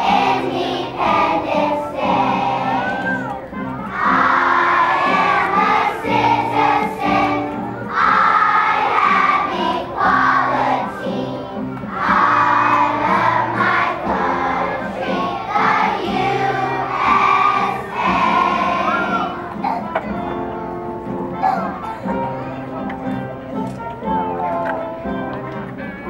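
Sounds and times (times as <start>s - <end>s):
children's choir singing: 0.0s - 19.8s
instrumental accompaniment: 0.0s - 26.0s.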